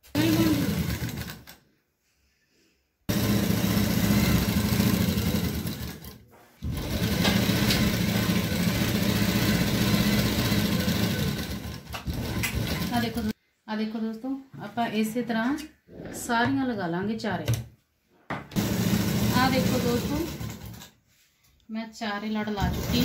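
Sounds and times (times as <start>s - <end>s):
sewing machine stitching: 0.0s - 1.6s, 3.1s - 13.4s, 18.6s - 21.0s, 22.5s - 23.0s.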